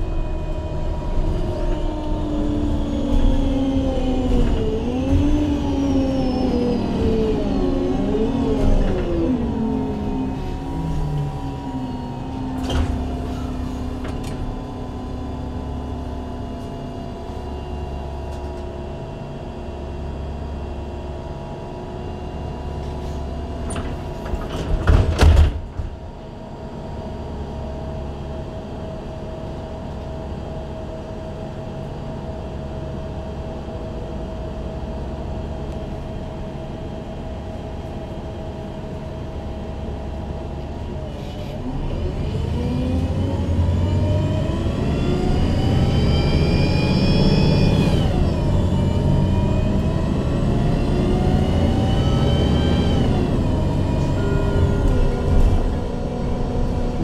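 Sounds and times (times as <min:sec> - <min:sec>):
bus engine idling: 0:00.0 - 0:24.5
bus engine and gearbox whine: 0:00.0 - 0:57.0.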